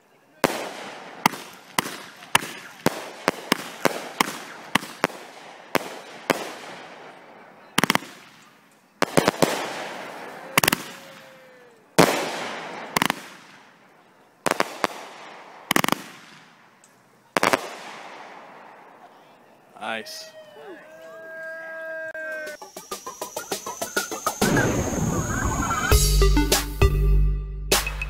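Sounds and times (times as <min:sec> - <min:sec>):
firework bangs with echo: 0:00.4 - 0:11.3, 0:12.0 - 0:13.8, 0:14.4 - 0:16.7, 0:17.4 - 0:19.0.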